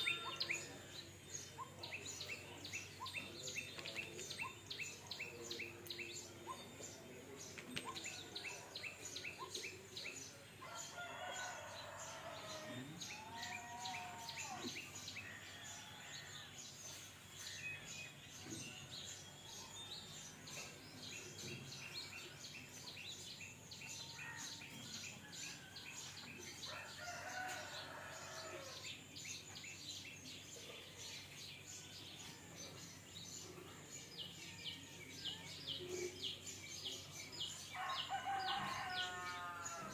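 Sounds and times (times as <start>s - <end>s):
small birds chirping: 0.0s - 39.9s
rooster crowing: 37.8s - 39.9s.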